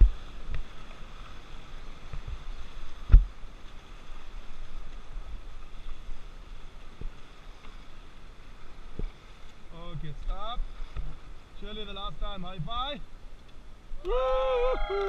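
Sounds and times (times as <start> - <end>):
wind on microphone: 0.0 - 11.6
rushing river water: 0.0 - 15.0.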